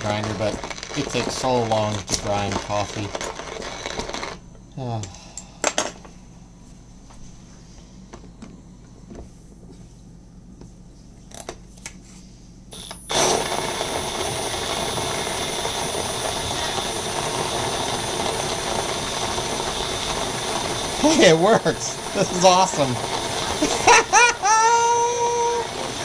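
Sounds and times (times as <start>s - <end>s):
drill running coffee grinder: 0.0s - 4.4s, 12.7s - 26.0s.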